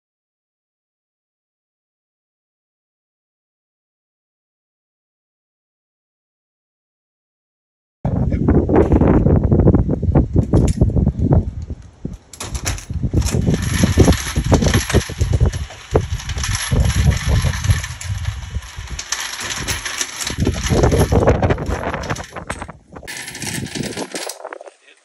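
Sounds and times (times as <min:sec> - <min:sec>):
brass cases clinking: 0:12.2 - 0:24.5
reloading press clicking and clunking: 0:12.3 - 0:24.4.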